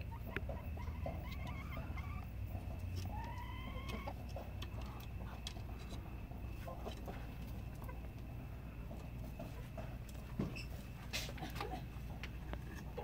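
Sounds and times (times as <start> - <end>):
hen calling: 0.0 - 5.4
scratches and clicks in coop: 0.0 - 13.0.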